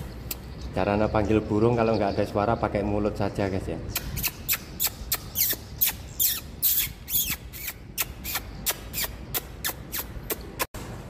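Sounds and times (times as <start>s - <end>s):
person making squeaky chirps: 3.9s - 10.7s.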